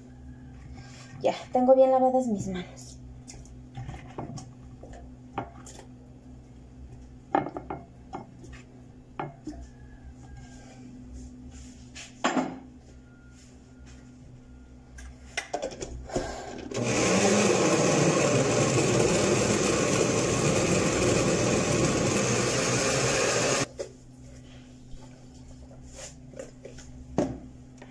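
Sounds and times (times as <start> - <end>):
electric blender running: 16.1 - 23.7.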